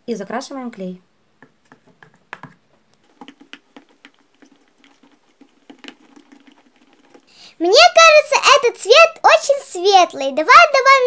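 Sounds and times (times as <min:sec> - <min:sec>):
plastic spoon tapping bowl: 0:01.4 - 0:07.3.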